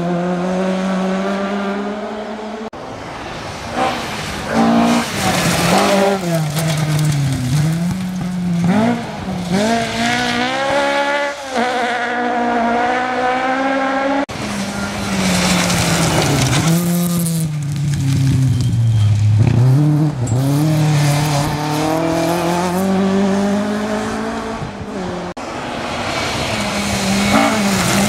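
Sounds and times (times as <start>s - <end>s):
rally car engine at full throttle: 0.0s - 28.0s
tyres scrabbling on gravel: 4.9s - 8.9s, 14.4s - 18.9s.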